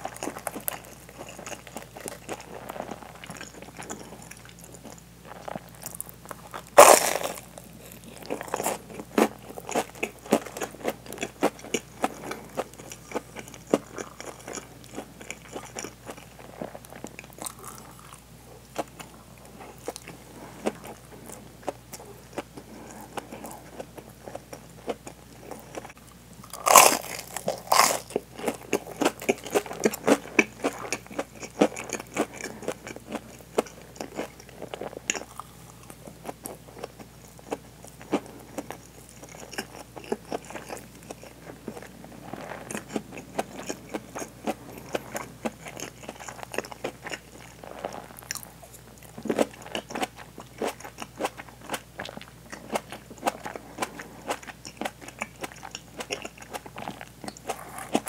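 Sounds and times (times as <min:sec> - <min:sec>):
chewing crispy fried food: 0:00.0 - 0:58.0
loud crunches: 0:06.8 - 0:07.4, 0:26.5 - 0:28.6.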